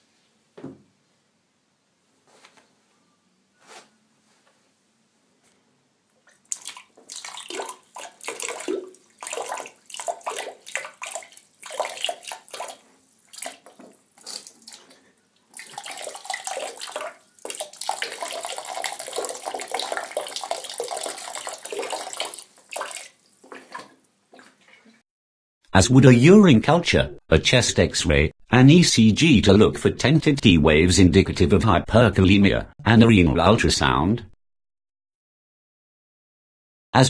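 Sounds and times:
urine splashing into toilet water: 0:06.3 - 0:25.0.

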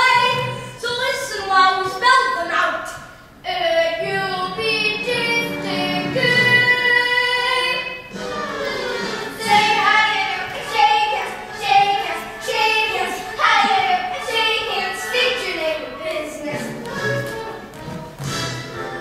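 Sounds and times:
young voices singing: 0:02.9 - 0:17.9.

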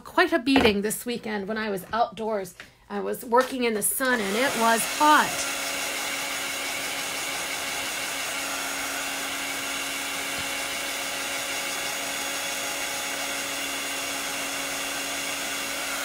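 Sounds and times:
heat tool blowing air: 0:04.1 - 0:16.0.

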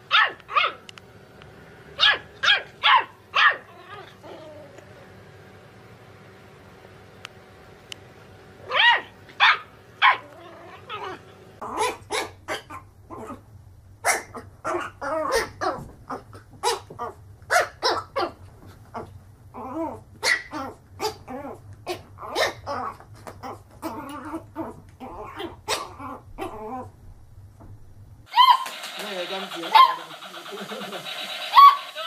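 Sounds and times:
puppies barking: 0:00.0 - 0:00.9, 0:02.0 - 0:04.4, 0:08.6 - 0:12.9, 0:28.3 - 0:32.0.

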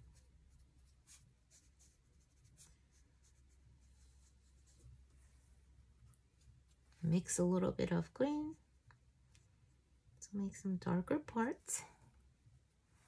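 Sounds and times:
brush scratching on paper: 0:00.0 - 0:05.2
low steady hum: 0:00.0 - 0:13.0.

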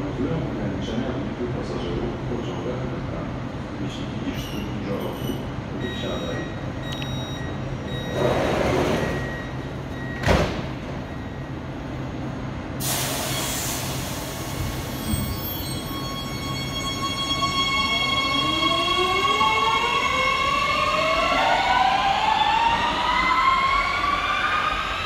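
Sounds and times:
train low hum: 0:00.0 - 0:25.0
short high beeps: 0:04.5 - 0:10.2
train doors sliding shut: 0:08.1 - 0:09.3, 0:10.1 - 0:11.0
air hiss: 0:12.8 - 0:15.1.

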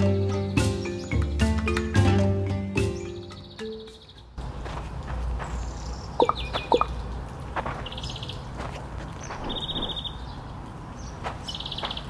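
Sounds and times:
outdoor background noise: 0:00.0 - 0:12.0
bird calling in rapid trills: 0:05.6 - 0:07.0.

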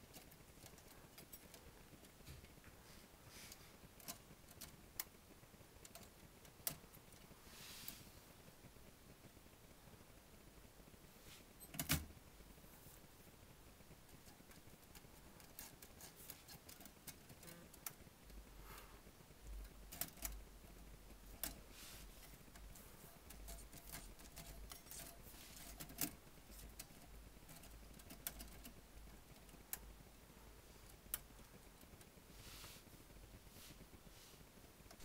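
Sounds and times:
soft brushing: 0:02.6 - 0:03.9, 0:07.2 - 0:08.4, 0:11.1 - 0:11.6, 0:21.6 - 0:25.8, 0:32.1 - 0:35.0.

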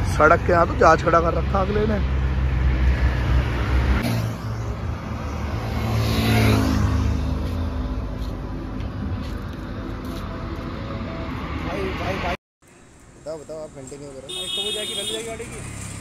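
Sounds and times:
low road rumble: 0:00.0 - 0:16.0
vehicle engine passing by: 0:00.2 - 0:08.6.

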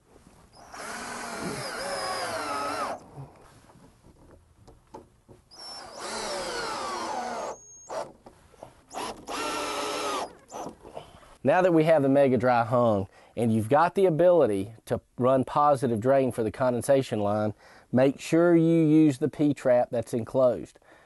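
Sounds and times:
cordless drill driving screws: 0:00.6 - 0:03.0, 0:05.6 - 0:08.1, 0:08.9 - 0:10.8.

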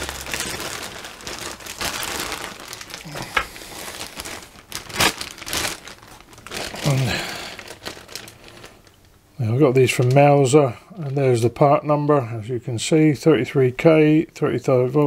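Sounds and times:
plastic bag crinkling: 0:00.0 - 0:11.7.

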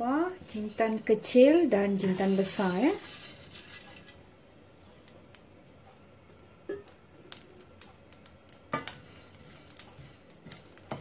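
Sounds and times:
wooden spatula scraping seeds: 0:00.4 - 0:04.2, 0:08.8 - 0:11.0
seeds clicking in a pan: 0:06.9 - 0:11.0.

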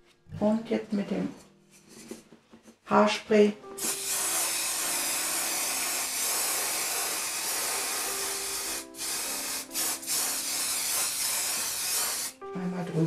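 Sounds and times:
aerosol can spraying hiss: 0:03.8 - 0:12.4.

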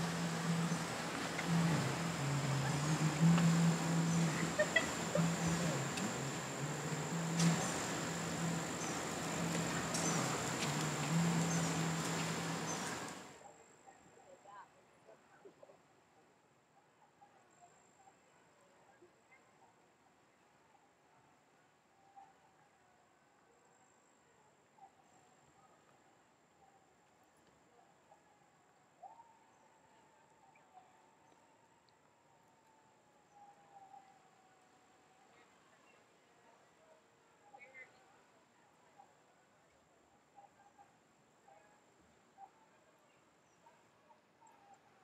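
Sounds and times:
insects trilling: 0:00.0 - 0:13.2
broad hiss: 0:00.0 - 0:13.3
faint calls: 0:00.0 - 0:13.3
low hum: 0:00.0 - 0:13.3.

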